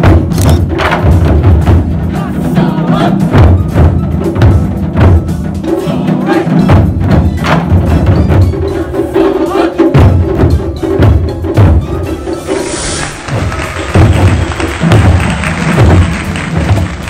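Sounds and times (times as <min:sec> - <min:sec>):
deep drum hits: 0:00.0 - 0:02.1, 0:13.0 - 0:17.0.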